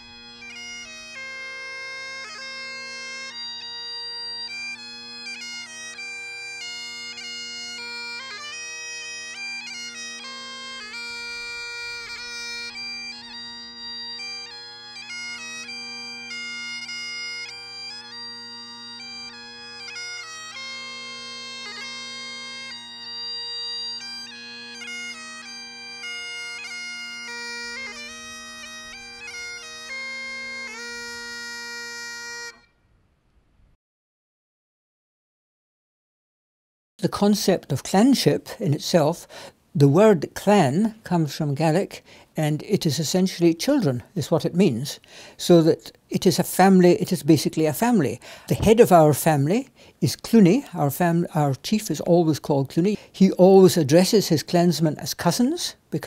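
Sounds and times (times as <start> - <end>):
bagpipes playing a slow tune: 0.0 - 32.8, 38.4 - 56.0.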